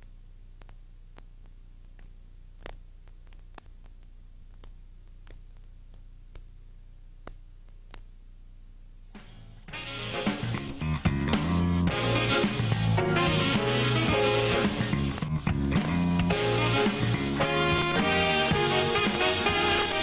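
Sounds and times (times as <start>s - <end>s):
faint clicks and crackles: 0.0s - 8.2s
low electrical hum: 0.0s - 20.0s.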